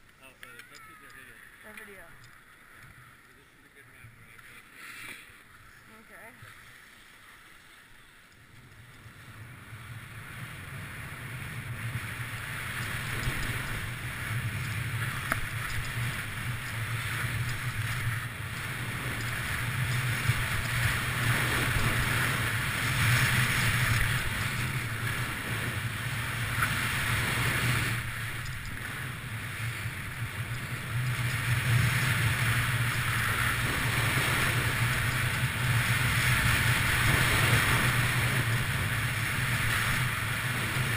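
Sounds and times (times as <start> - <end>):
skis sliding on snow: 1.1 - 40.9
wind rushing over microphone: 9.0 - 40.9.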